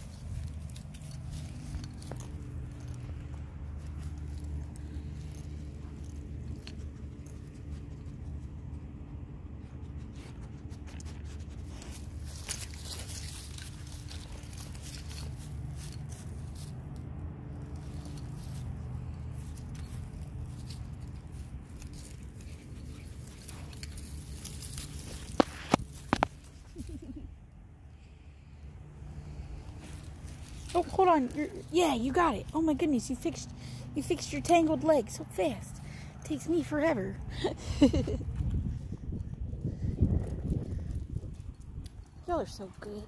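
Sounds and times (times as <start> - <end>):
dogs sniffing in grass: 0.0 - 16.6, 17.8 - 26.8, 28.0 - 31.7
low hum: 0.0 - 43.0.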